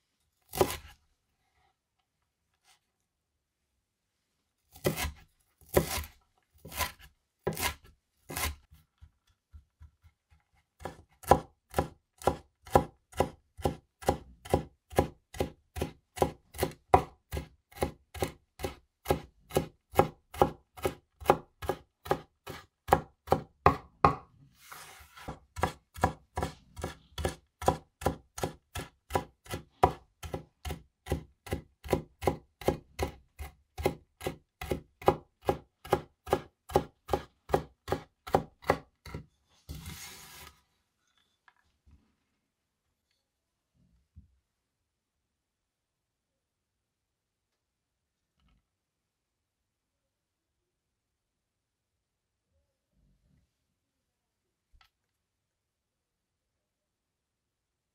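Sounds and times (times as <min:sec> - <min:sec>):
cleaver chopping on wooden board: 0:10.8 - 0:24.3, 0:25.3 - 0:39.2.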